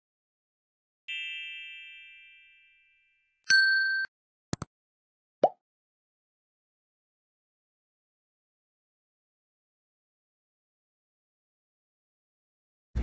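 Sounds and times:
bright chime: 1.1s - 4.1s.

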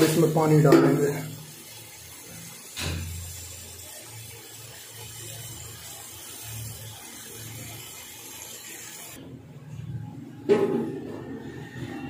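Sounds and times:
water poured into a pot: 0.0s - 9.2s.

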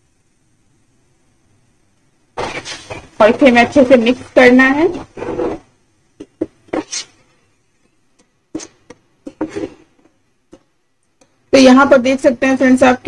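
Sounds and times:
spatula scraping frying pan: 2.4s - 7.4s, 8.5s - 10.0s.

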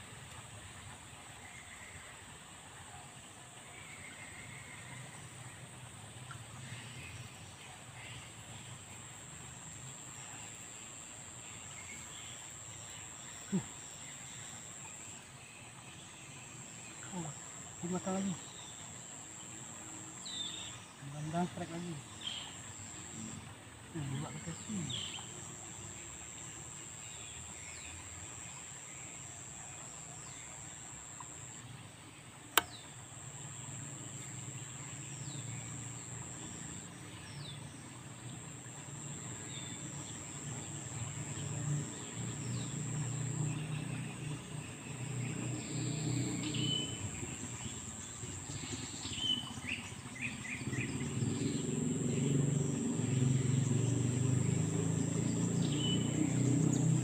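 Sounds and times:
low background hiss: 0.0s - 57.0s
birds chirping: 16.7s - 57.0s
sharp click: 32.5s - 32.8s.

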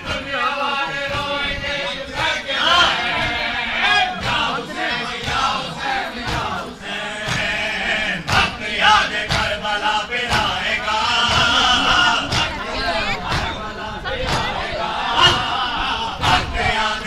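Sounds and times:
men chanting a lament: 0.0s - 17.0s
sharp slaps: 6.2s - 7.6s, 8.2s - 9.7s, 10.3s - 11.6s, 12.2s - 12.6s, 14.2s - 14.6s.

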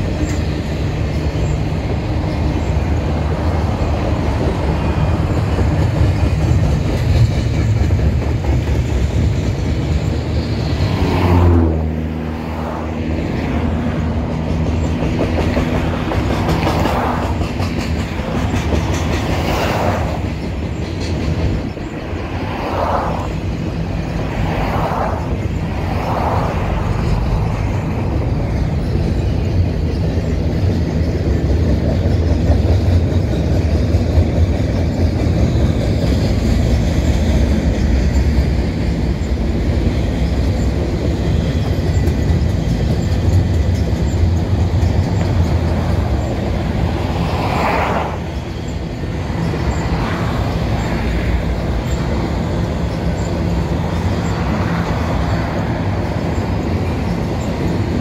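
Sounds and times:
freight train rumbling: 0.0s - 58.0s
cars whooshing past: 10.0s - 29.1s, 44.2s - 58.0s.

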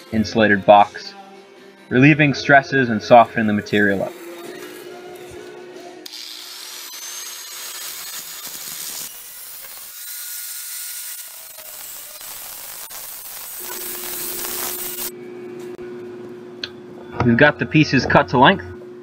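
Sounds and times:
angle grinder cutting steel: 3.2s - 5.4s, 6.0s - 15.1s.

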